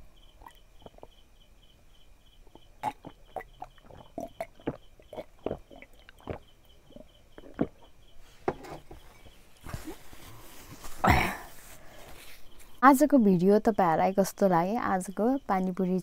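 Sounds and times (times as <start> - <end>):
person gulping and swallowing: 0.4 - 1.2, 2.5 - 7.9.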